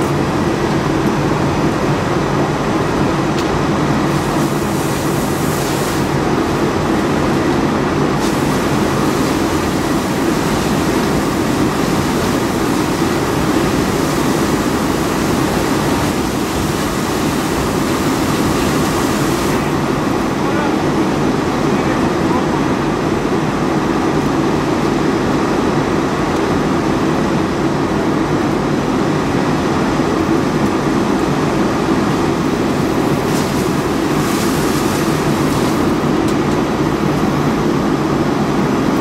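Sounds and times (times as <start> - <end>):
fire engine pump running: 0.0 - 39.0
fire hose spraying water: 3.7 - 22.1, 32.1 - 37.8.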